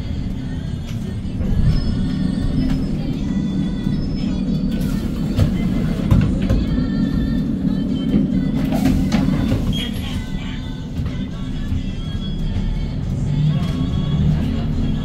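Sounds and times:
bus engine drone: 0.0 - 15.0
music playing: 0.0 - 15.0
road and cabin noise: 0.0 - 15.0.

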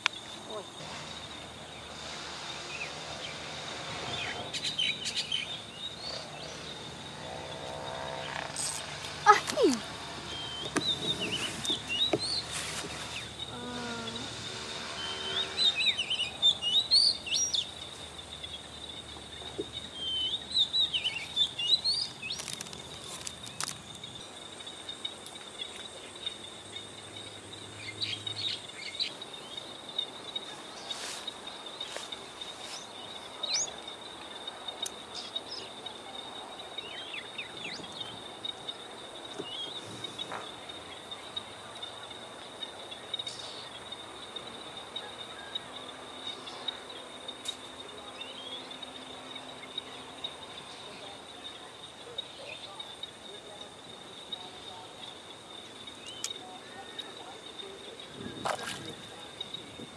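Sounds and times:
high-pitched insect drone: 0.3 - 12.0, 13.0 - 16.5.

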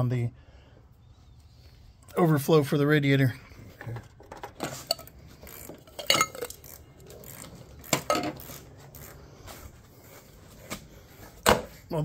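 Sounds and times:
metal tools clinking: 3.8 - 9.2.

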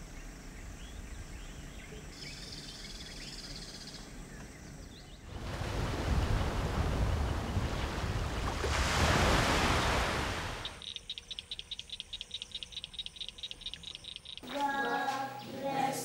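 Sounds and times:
sea waves rushing: 5.3 - 10.8
high insect trill: 9.8 - 16.0
bird chirps: 10.6 - 14.5.

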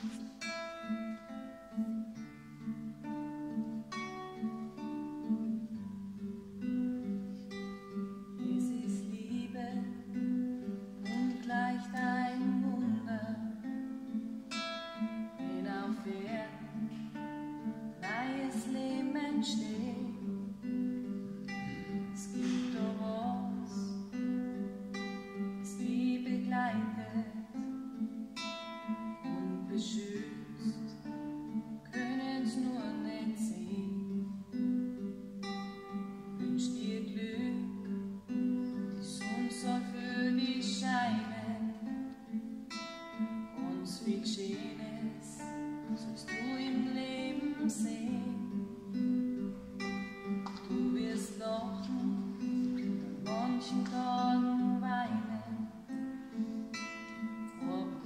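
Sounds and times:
classical guitar playing: 0.0 - 58.0
person singing: 21.4 - 24.1, 38.8 - 42.0, 50.5 - 56.5, 57.5 - 58.0.

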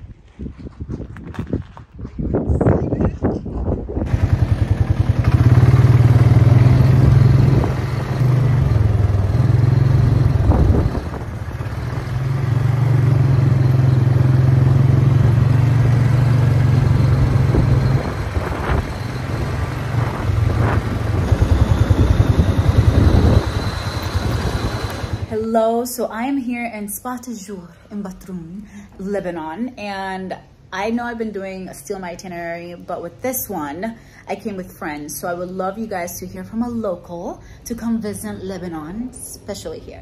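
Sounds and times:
off-road vehicle engine running: 3.9 - 25.5.

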